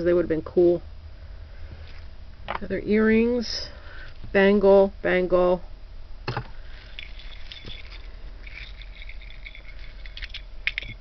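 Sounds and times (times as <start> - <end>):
jewelry rustling and clinking: 6.3 - 11.0.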